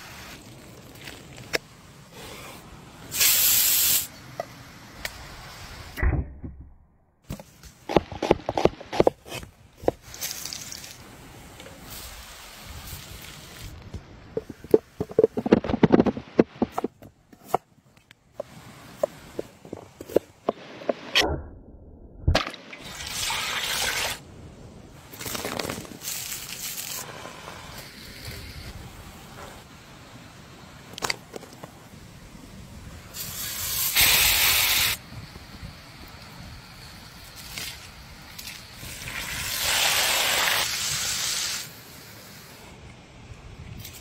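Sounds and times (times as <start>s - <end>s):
rushing hiss: 2.1s - 4.2s, 32.9s - 42.8s.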